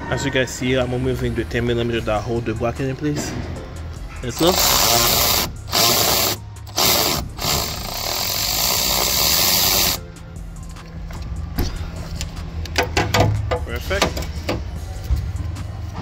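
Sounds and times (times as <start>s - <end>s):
electric ratchet running: 4.4s - 10.0s.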